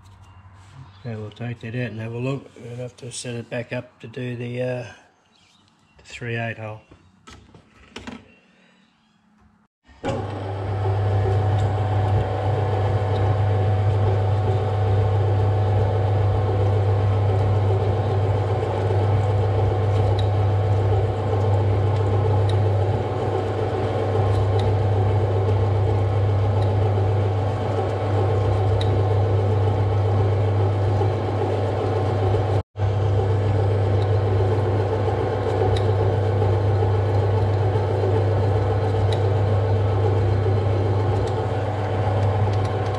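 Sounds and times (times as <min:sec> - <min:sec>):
metal lathe humming: 0:10.1 - 0:42.9
drill boring into metal: 0:33.1 - 0:42.9.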